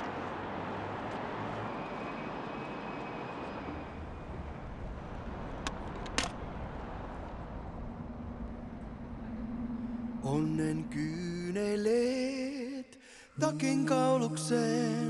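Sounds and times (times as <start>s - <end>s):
traffic rumble: 0.0s - 12.7s
steady low note: 6.4s - 12.3s.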